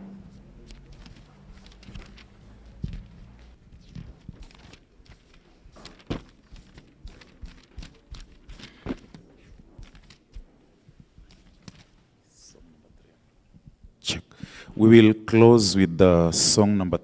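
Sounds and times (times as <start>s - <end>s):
footsteps: 0.7s - 12.0s.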